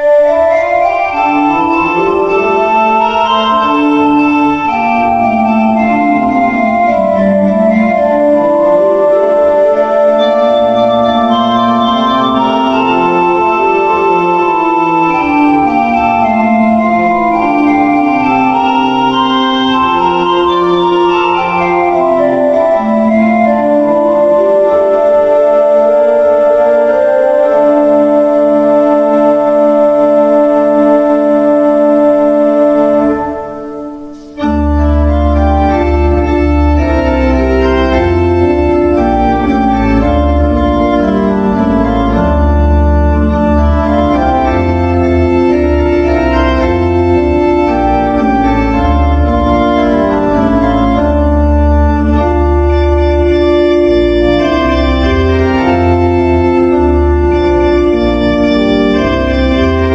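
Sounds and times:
church organ playing: 0:00.0 - 0:59.9.

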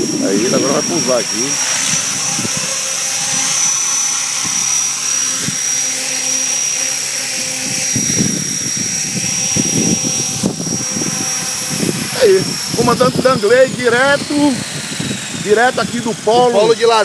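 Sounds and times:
gusty low rumble: 0:00.0 - 0:05.9, 0:06.5 - 0:16.9
model helicopter motor whine: 0:00.0 - 0:17.0.

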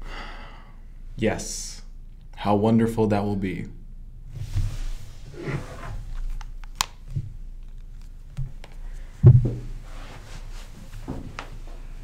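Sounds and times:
dull thump: 0:09.2 - 0:09.8.

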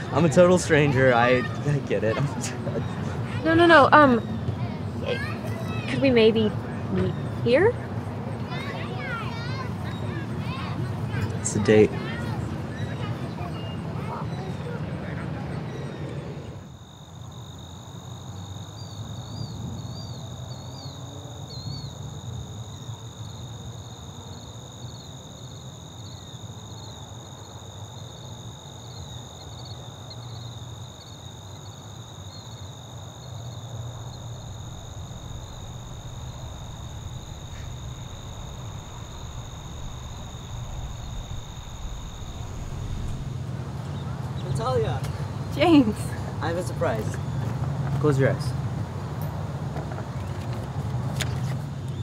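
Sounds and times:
crickets trilling: 0:00.0 - 0:52.0
low rumble: 0:34.7 - 0:44.2.

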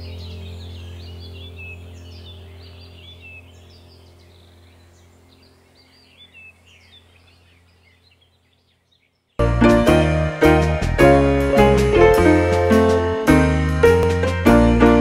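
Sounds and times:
steady low hum: 0:00.0 - 0:08.7
faint birds chirping: 0:00.0 - 0:12.8.

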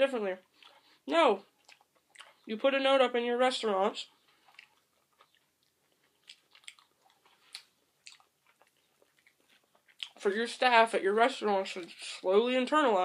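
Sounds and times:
soft chewing clicks: 0:00.4 - 0:02.5, 0:04.1 - 0:10.3.

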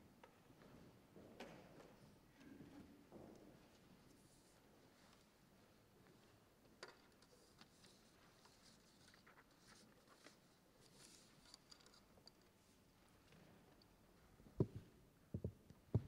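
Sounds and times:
faint clicks and rustles: 0:01.4 - 0:16.0.

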